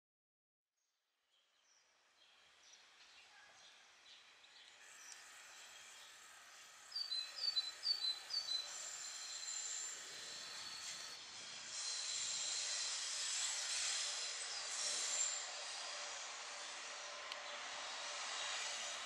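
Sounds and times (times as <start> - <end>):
electric locomotive approaching: 3.8 - 19.0
bird chirping: 6.9 - 11.2.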